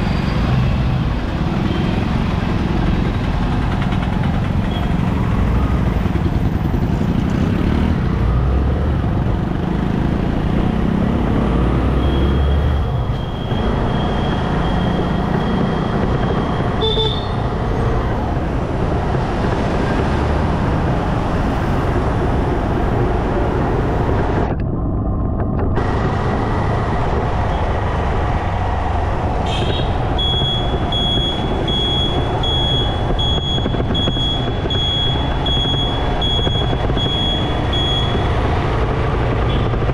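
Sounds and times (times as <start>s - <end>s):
motorcycle engine: 0.0s - 39.9s
other vehicles: 0.0s - 39.9s
road noise: 0.0s - 39.9s
high beep: 12.0s - 17.2s, 30.2s - 38.3s.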